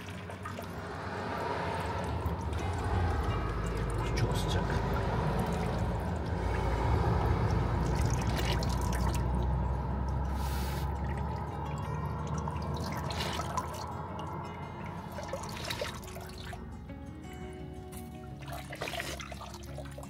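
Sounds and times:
water trickling and splashing: 0.0 - 17.1, 17.7 - 20.0
low rumble: 0.3 - 17.1.

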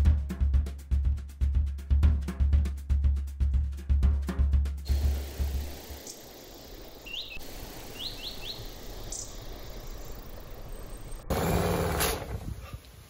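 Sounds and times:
bird chirps: 4.9 - 11.3.

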